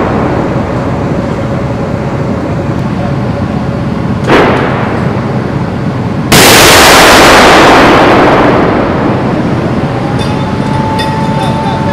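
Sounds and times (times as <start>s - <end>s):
cannon firing blast: 0.0s - 1.0s, 4.2s - 5.4s, 6.3s - 9.8s.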